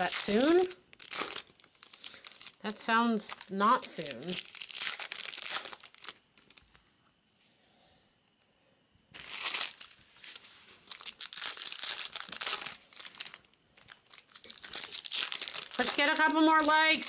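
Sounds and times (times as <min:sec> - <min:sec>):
wrappers crinkling and tearing: 0:00.0 - 0:06.8, 0:09.2 - 0:17.0.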